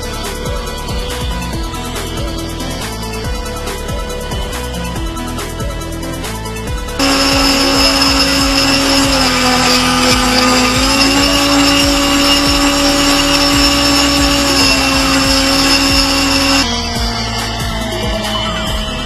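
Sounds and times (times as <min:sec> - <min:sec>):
model motor propeller whine: 0:07.0 - 0:19.0.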